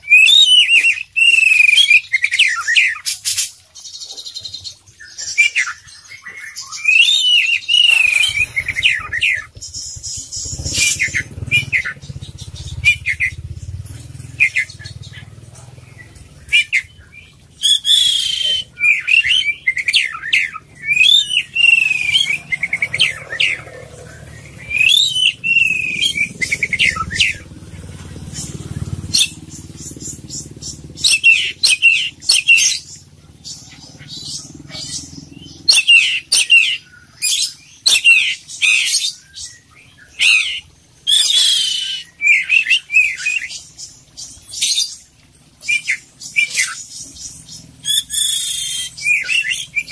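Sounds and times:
magpie-robin singing: 0:00.0 - 0:45.0, 0:45.6 - 0:49.9
low rumble: 0:07.6 - 0:19.7, 0:20.5 - 0:31.1.

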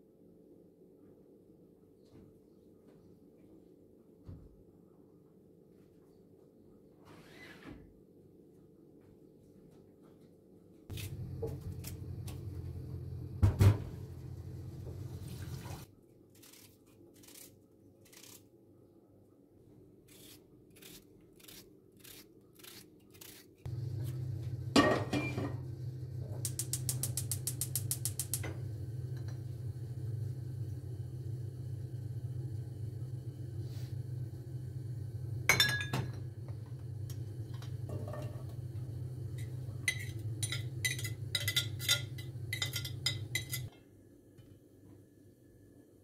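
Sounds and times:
low hum: 0:10.9 - 0:15.8, 0:23.7 - 0:43.7.

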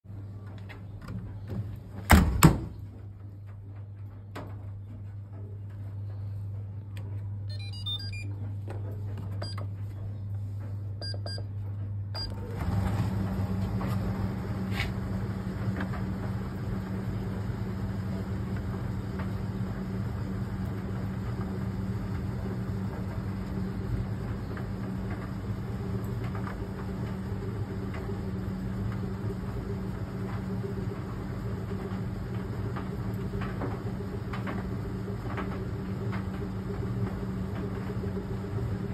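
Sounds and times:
dryer drum humming: 0:00.0 - 0:38.9
dryer door shutting: 0:01.2 - 0:02.8
short beeps: 0:07.5 - 0:08.3.

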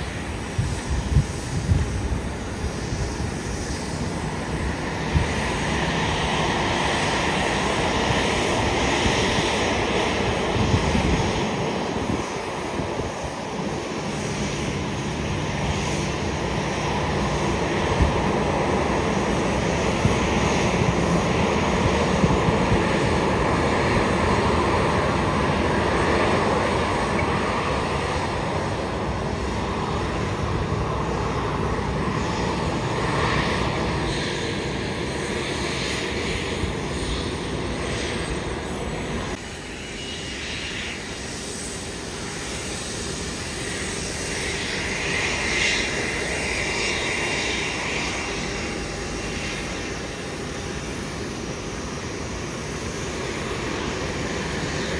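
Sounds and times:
jet engines idling: 0:00.0 - 0:54.9.

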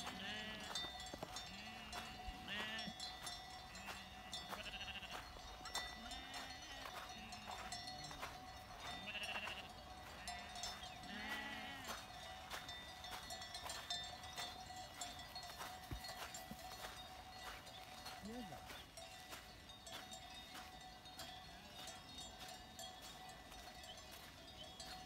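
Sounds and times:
sheep bleating: 0:00.0 - 0:03.1, 0:03.8 - 0:05.3, 0:05.9 - 0:07.6, 0:08.8 - 0:12.1.

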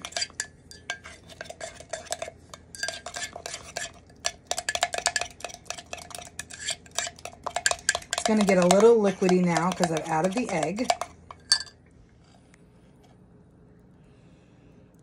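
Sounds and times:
utensil stirring batter in mug: 0:00.0 - 0:11.7.

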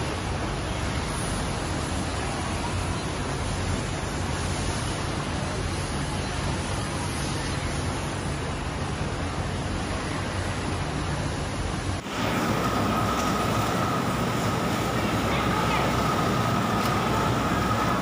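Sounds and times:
industrial sewing machines running: 0:12.0 - 0:18.0
low hum: 0:12.0 - 0:18.0.

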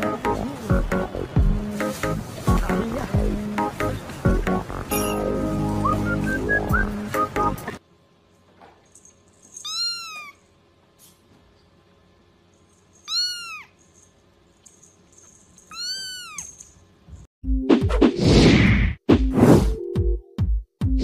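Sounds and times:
kitten mewing: 0:09.6 - 0:10.4, 0:13.1 - 0:13.8, 0:15.7 - 0:16.5.

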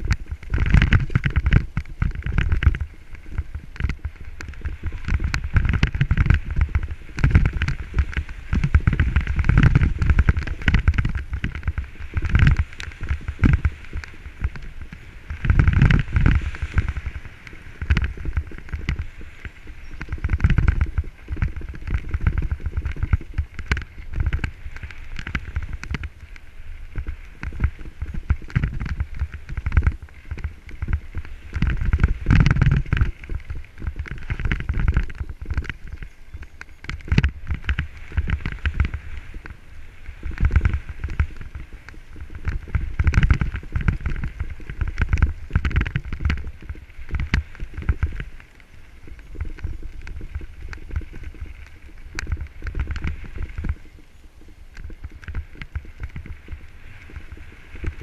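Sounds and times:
low wind rumble: 0:00.0 - 0:58.0
bike knocks and rattles: 0:03.6 - 0:26.1, 0:42.4 - 0:48.2.

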